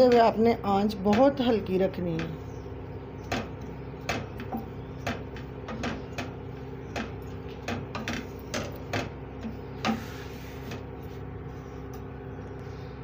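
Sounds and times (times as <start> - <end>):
wooden spatula scraping pan: 9.4 - 11.3.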